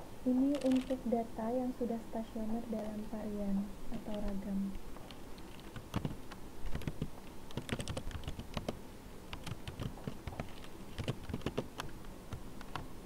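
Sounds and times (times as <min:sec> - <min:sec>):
keyboard key clicks: 0:05.5 - 0:08.8, 0:09.4 - 0:12.9.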